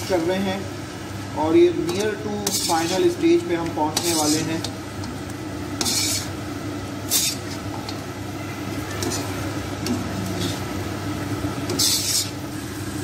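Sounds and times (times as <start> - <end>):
hot fat sizzling: 0.0 - 13.0
metal spoon scraping wok: 1.8 - 3.2, 3.9 - 4.7, 5.8 - 6.4, 7.0 - 7.7, 9.0 - 10.7, 11.6 - 12.5.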